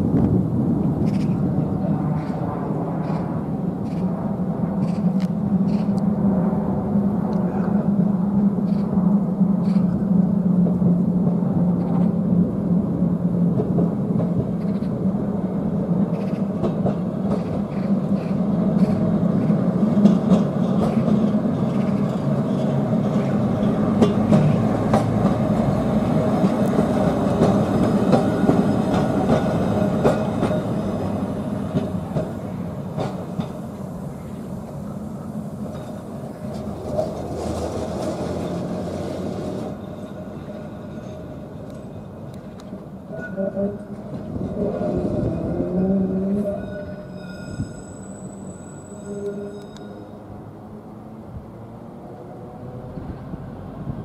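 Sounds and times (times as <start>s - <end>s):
electric tram hum: 0.0s - 54.0s
wheels clicking on rails: 16.0s - 42.9s.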